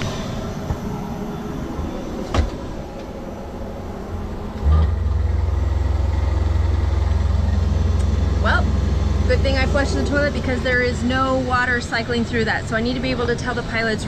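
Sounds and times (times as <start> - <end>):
toilet flush motor humming: 4.1 - 11.9.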